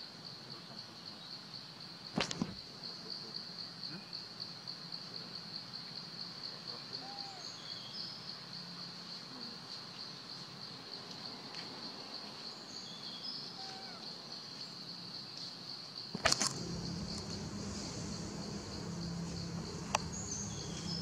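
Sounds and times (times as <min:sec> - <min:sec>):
faint short bird calls: 0:13.5 - 0:14.1
high-pitched insect drone: 0:16.2 - 0:21.0.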